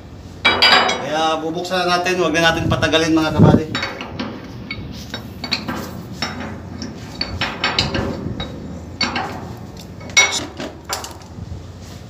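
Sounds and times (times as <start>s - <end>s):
metal clinks and knocks: 0.4s - 1.1s, 3.7s - 11.4s.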